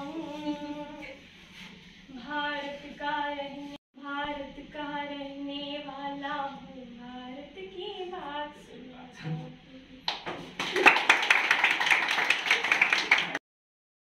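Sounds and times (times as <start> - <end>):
woman singing unaccompanied: 0.0 - 1.2, 2.1 - 10.1.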